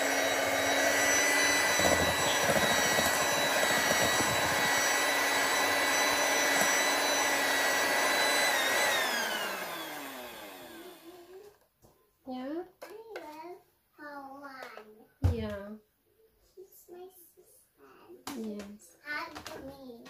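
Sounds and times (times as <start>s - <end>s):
electric hand mixer whining: 0.0s - 11.4s
mixer motor winding down: 0.0s - 11.4s.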